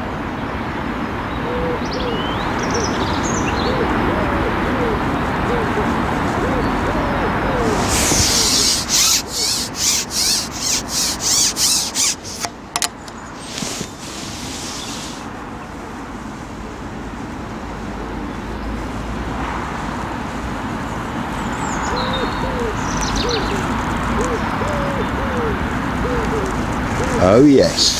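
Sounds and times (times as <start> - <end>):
fishing pole rubbing strokes: 7.6 - 12.5, 13.4 - 15.3.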